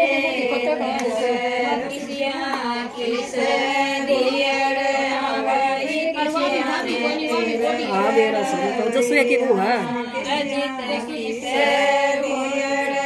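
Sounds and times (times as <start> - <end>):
women singing folk song: 0.0 - 13.0.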